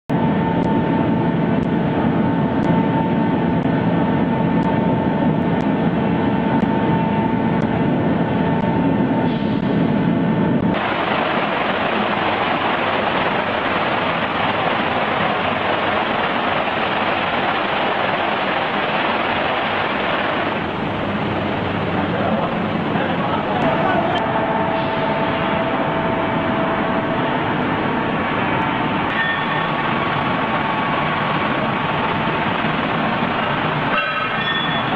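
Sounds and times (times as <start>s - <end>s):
machinery humming: 0.1s - 34.9s
hissing rush of machine noise: 8.8s - 34.9s.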